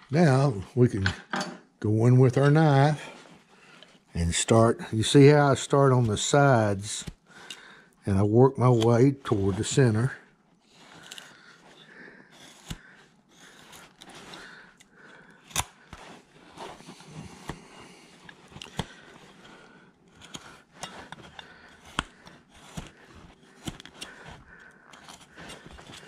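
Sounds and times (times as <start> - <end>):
knife carving wood: 8.6 - 10.0, 10.6 - 26.0.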